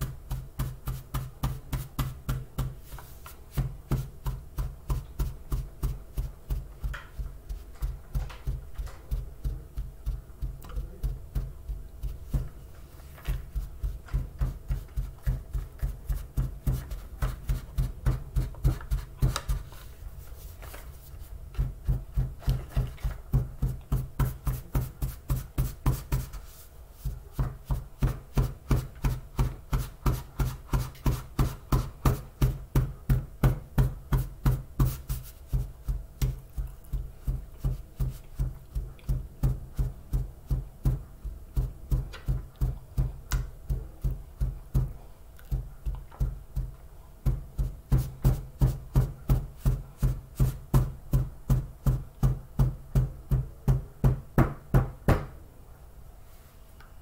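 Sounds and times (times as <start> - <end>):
paper carton rapped on table: 11.4 - 19.9, 20.5 - 36.4.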